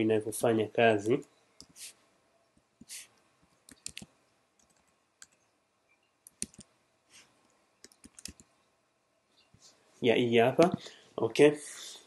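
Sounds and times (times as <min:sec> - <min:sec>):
soft hiss: 0:00.2 - 0:12.0
keyboard typing: 0:03.6 - 0:05.4, 0:06.2 - 0:06.8, 0:07.8 - 0:08.6.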